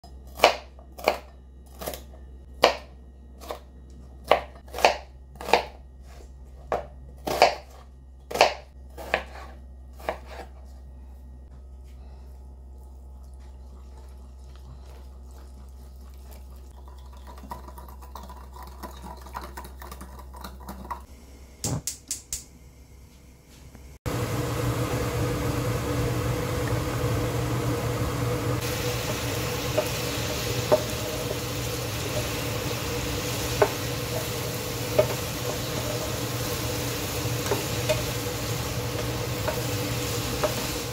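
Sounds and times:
knife chopping on plastic board: 2.6 - 2.9, 4.3 - 5.8, 6.7 - 10.4
chicken sizzling in hot oil: 24.1 - 40.9.

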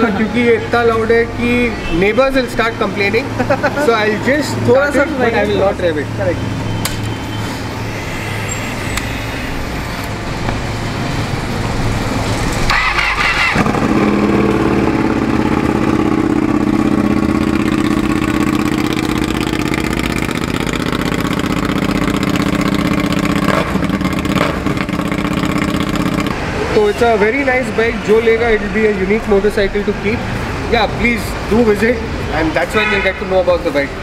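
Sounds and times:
motorcycle engine starting and idling: 12.5 - 26.4.

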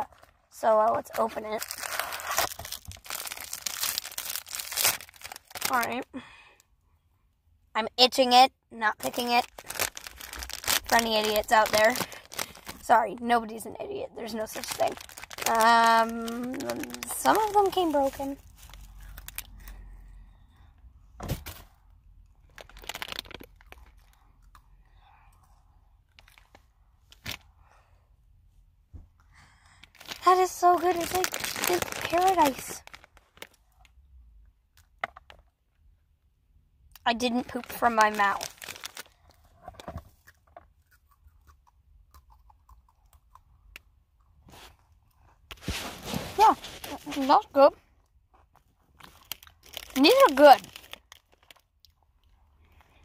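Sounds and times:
biscuit sticks crunching: 1.6 - 5.8, 9.4 - 12.9, 14.5 - 19.6, 22.4 - 24.6, 30.0 - 33.6, 37.5 - 39.2, 48.9 - 52.9
crunching and chewing biscuits: 9.4 - 12.9, 14.5 - 19.9, 22.1 - 27.5, 37.4 - 47.2, 48.0 - 53.0.

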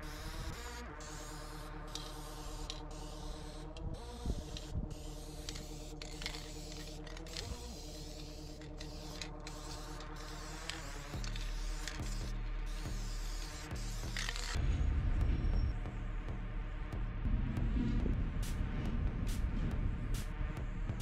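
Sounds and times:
aerosol spray paint hissing: 0.0 - 14.6
background music of held chords: 0.0 - 21.0.

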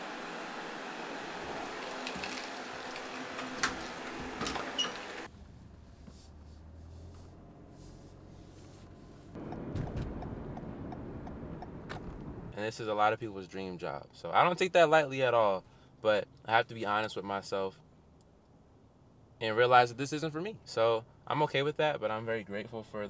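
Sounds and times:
car cabin hum: 2.7 - 12.6
low rumble: 9.4 - 12.6.

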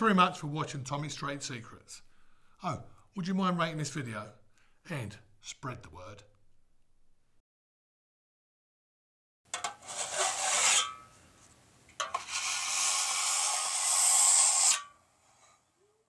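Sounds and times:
tool rasping across wood: 9.7 - 11.0, 12.1 - 15.5.

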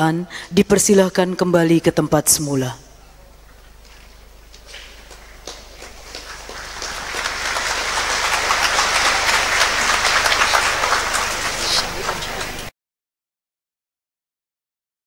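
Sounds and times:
large crowd applauding: 4.5 - 12.7.

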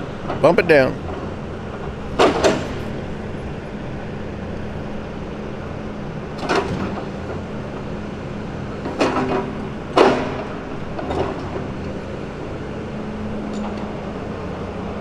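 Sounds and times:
truck diesel engine running: 0.0 - 15.0.

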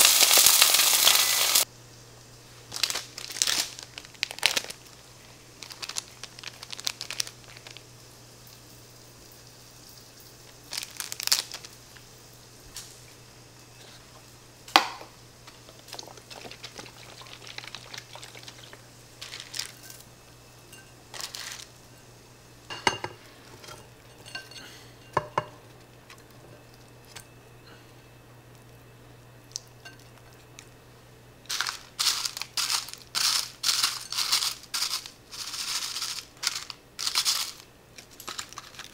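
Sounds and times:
plastic packets crinkling: 0.0 - 1.7, 2.7 - 7.9, 10.5 - 11.8, 15.7 - 20.0, 21.1 - 21.7, 31.5 - 38.9
low steady hum: 0.0 - 38.9.

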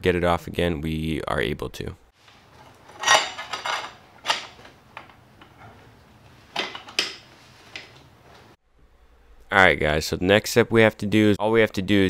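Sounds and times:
metal tools clinking: 2.3 - 5.9, 6.5 - 8.0.

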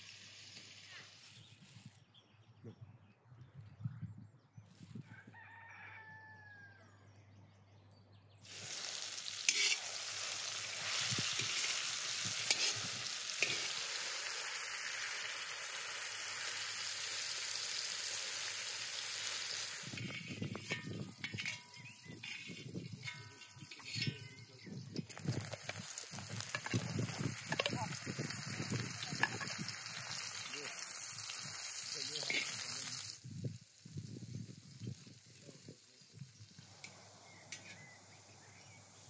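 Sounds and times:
vegetables sizzling in hot oil: 0.0 - 2.0, 8.4 - 39.0
rooster crowing: 5.0 - 7.0
quiet outdoor ambience: 29.9 - 39.0.

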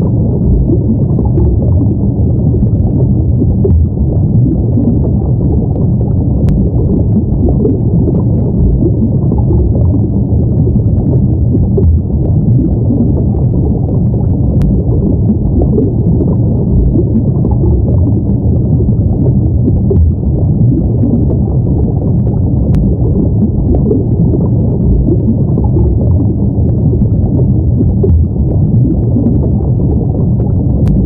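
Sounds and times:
deep underwater rumble: 0.0 - 31.0
water bubbling: 0.0 - 31.0
faint tick: 6.4 - 6.7, 14.6 - 14.8, 22.2 - 23.0, 30.4 - 31.0.

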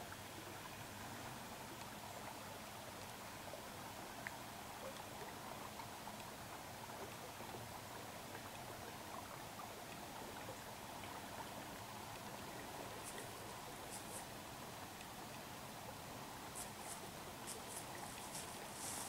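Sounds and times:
outdoor background hiss: 0.0 - 19.0
faint high crackles: 12.8 - 14.4, 16.4 - 19.0.

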